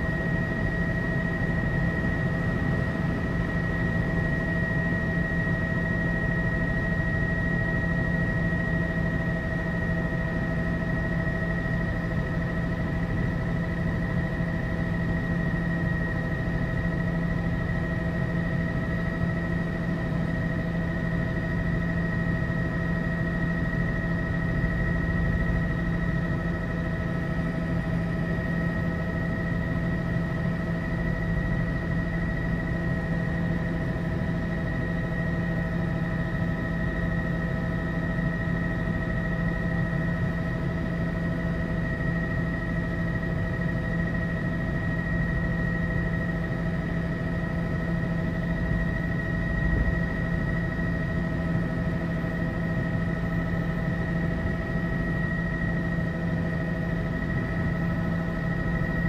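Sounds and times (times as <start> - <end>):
helicopter cabin drone: 0.0 - 59.0
high whine: 47.4 - 59.0.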